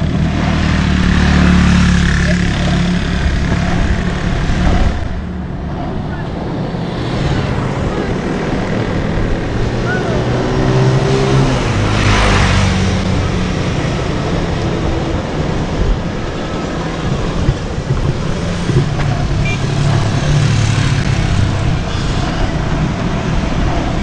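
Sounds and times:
motor vehicles passing: 0.0s - 24.0s
skate wheels rolling on road: 11.6s - 24.0s.

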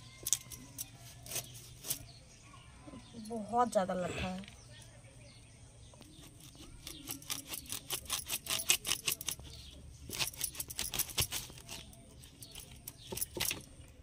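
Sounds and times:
blade crunching through fruit: 6.1s - 9.5s.

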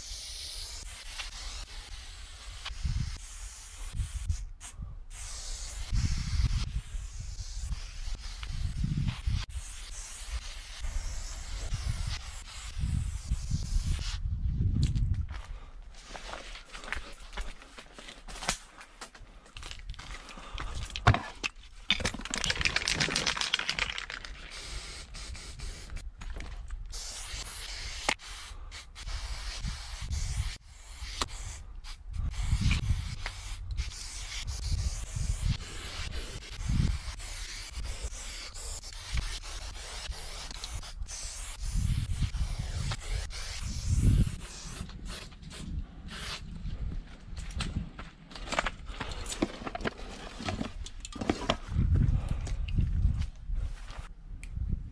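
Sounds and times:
spray paint can hissing: 0.0s - 14.2s, 22.2s - 26.0s, 26.9s - 46.5s
clicks and knocks of spray can: 21.9s - 24.4s.

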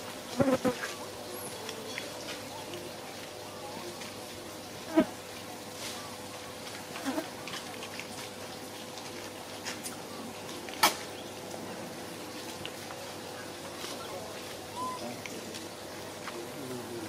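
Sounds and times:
insects buzzing: 0.0s - 2.5s, 4.7s - 5.2s, 6.9s - 7.4s.

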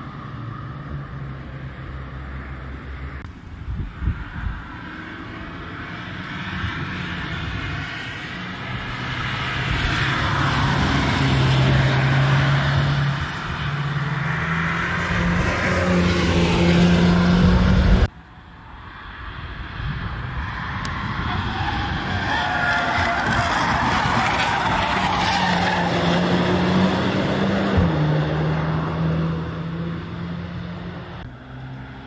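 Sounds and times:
car engine accelerating hard: 6.2s - 18.1s, 21.1s - 32.0s.

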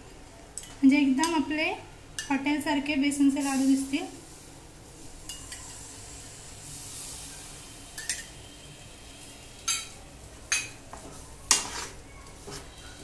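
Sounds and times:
faint sizzle: 0.0s - 13.0s
spoon clinking steel bowl: 9.6s - 10.8s
metal spatula scraping pan: 11.5s - 13.0s.

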